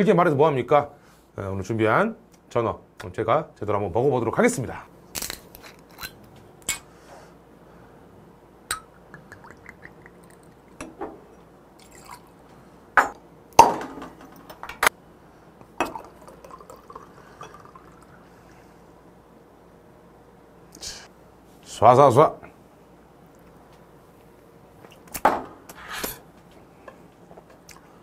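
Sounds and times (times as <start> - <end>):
beer poured into a glass: 11.8 - 12.4, 15.8 - 18.6
liquid gurgling pour: 11.8 - 12.4, 15.8 - 18.6
glass bottles clinking on table: 13.0 - 14.9.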